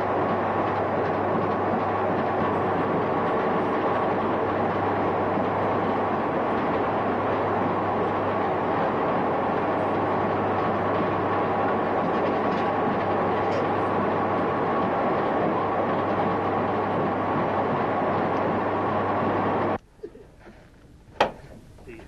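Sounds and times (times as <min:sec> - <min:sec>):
mining machinery rushing din: 0:00.0 - 0:19.8.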